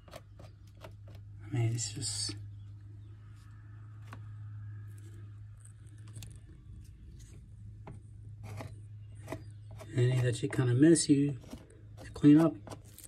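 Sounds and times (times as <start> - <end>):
steady low hum: 0.0 - 13.0
epoxy squishing: 11.3 - 13.0.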